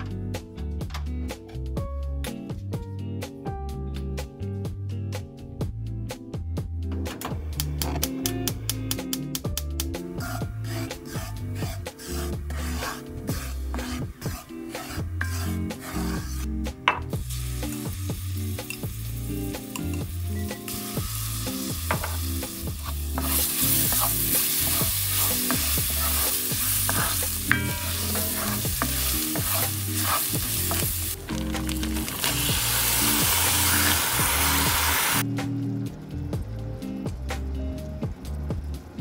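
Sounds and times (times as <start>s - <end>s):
wooden spoon scraping pan: 10.2s - 16.5s, 22.8s - 31.2s
spices sizzling in oil: 10.2s - 35.9s.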